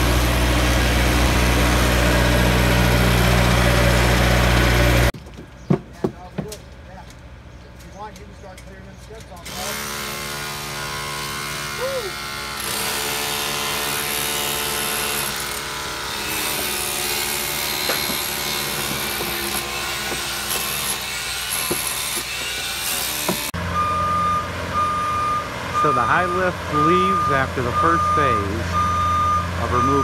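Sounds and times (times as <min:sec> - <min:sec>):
power tool and machinery noise: 0:00.0 - 0:05.2, 0:09.3 - 0:23.6, 0:25.6 - 0:30.0.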